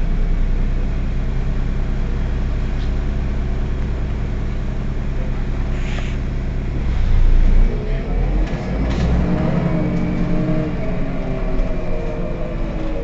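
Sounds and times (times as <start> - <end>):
bus diesel engine idling: 0.0 - 13.0
short air hiss: 5.7 - 6.2.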